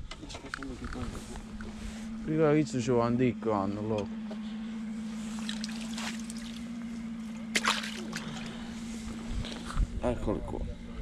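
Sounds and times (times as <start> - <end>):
steady low hum: 0.0 - 11.0
sharp water splash: 5.4 - 6.6, 7.5 - 8.5
sea water lapping against rocks: 7.6 - 8.6.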